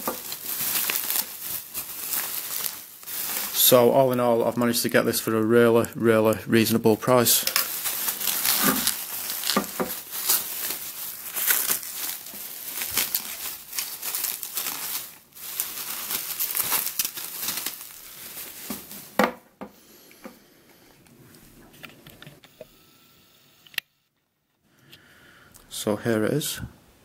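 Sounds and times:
faint handling sounds: 0.0s - 19.2s
bubble wrap crinkling: 0.0s - 19.3s.

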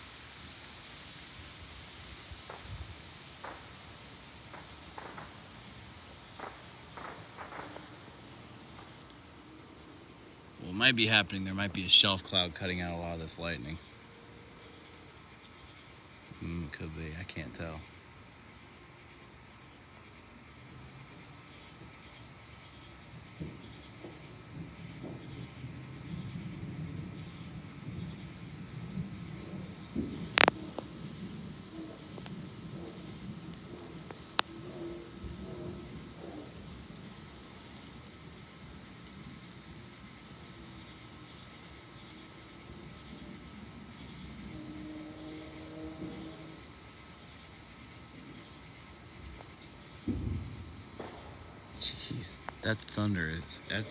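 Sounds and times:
insects chirping: 0.0s - 53.9s
distant thunder rumbling: 2.4s - 9.0s, 23.2s - 40.9s, 49.2s - 53.9s.

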